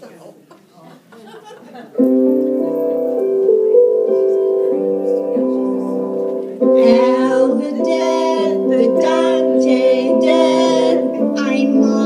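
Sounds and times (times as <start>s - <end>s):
held instrumental chords: 1.9s - 12.0s
person singing loudly: 6.8s - 12.0s.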